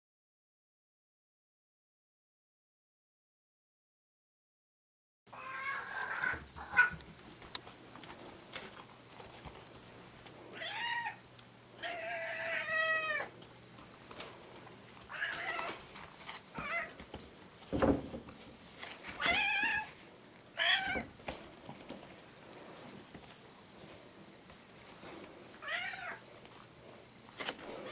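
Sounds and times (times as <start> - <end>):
cat meowing: 5.3 - 6.9, 10.6 - 11.2, 11.8 - 13.3, 15.1 - 15.8, 19.2 - 19.9, 20.6 - 21.1, 25.6 - 26.2.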